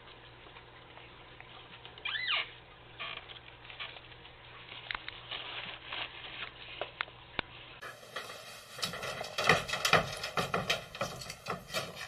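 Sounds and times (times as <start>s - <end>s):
plastic bag rustling and scraping: 3.7s - 6.8s, 7.6s - 10.2s.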